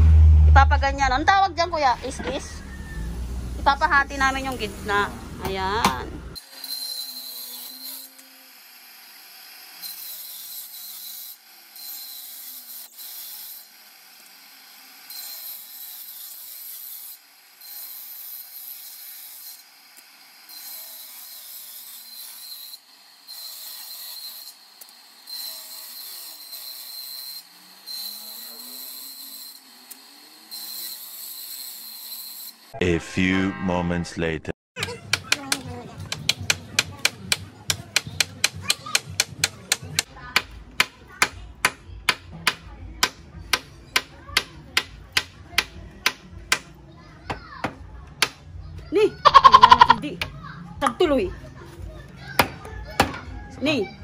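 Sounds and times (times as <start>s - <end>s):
saw cutting wooden boards: 2.1s - 33.9s, 34.8s - 48.4s
table saw whine: 6.2s - 16.4s, 17.2s - 32.8s.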